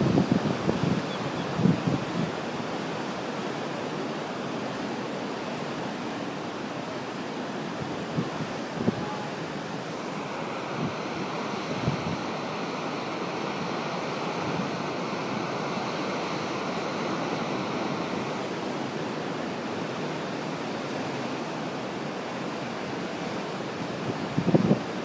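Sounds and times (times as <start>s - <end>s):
surf breaking over rocks: 7.6s - 24.8s.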